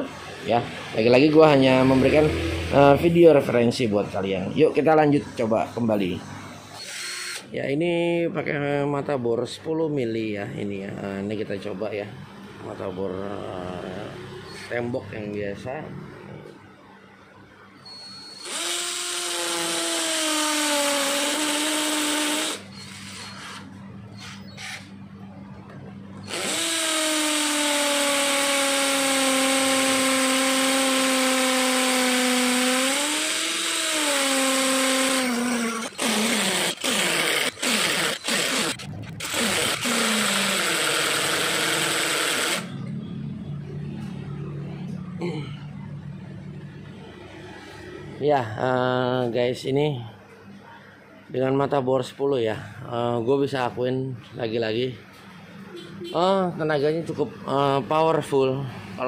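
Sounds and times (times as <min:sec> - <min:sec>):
hammer drill boring into concrete: 0:06.7 - 0:07.5, 0:18.3 - 0:23.6, 0:26.3 - 0:42.7.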